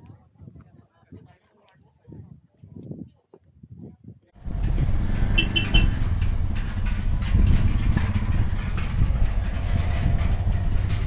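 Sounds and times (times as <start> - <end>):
motorcycle engine running: 4.4 - 11.0.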